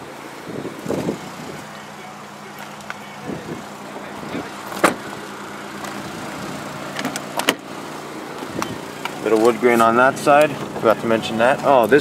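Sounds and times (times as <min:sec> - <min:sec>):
car engine idling: 0:00.0 - 0:12.0
sharp clicks and knocks: 0:06.9 - 0:07.6.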